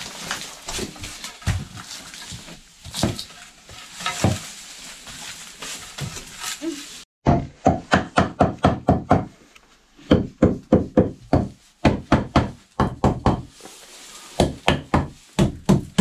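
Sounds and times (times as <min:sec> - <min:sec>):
hammer striking wood: 0:07.2 - 0:09.3, 0:14.4 - 0:16.0.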